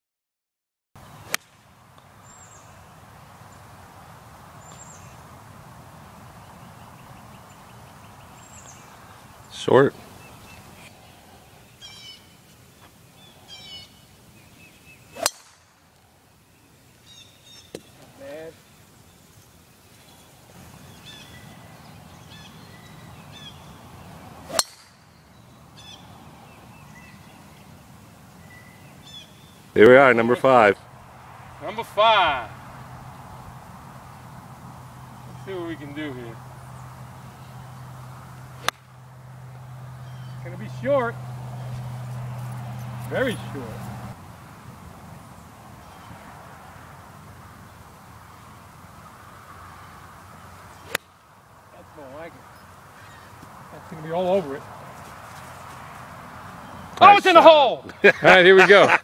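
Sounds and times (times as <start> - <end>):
golf club striking ball: 1.3 - 1.6, 15.2 - 15.7, 24.5 - 25.2, 38.6 - 39.0, 50.8 - 51.1
faint bird chirps: 4.6 - 5.2, 6.4 - 12.4, 13.1 - 15.3, 28.4 - 29.6.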